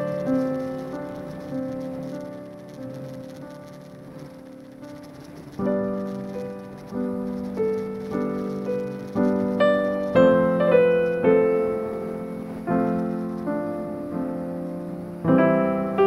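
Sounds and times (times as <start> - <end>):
piano chords: 0.0 - 16.0.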